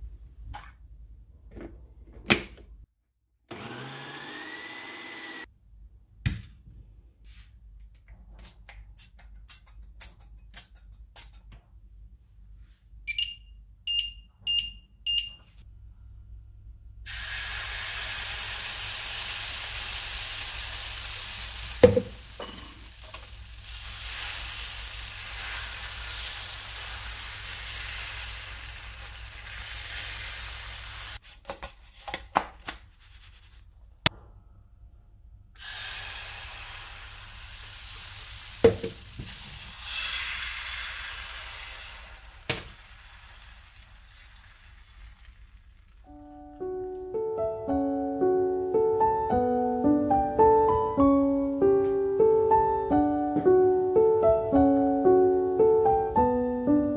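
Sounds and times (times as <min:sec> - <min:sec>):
hob touch control beeps: 0:13.1 - 0:15.4
batter sizzling in a pan: 0:17.1 - 0:31.2, 0:35.6 - 0:46.1.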